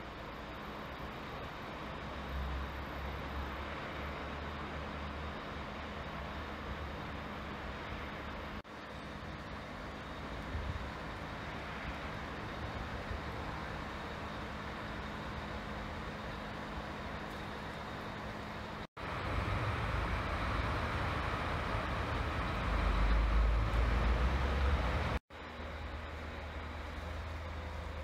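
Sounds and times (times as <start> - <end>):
crane engine running: 0.0 - 28.0.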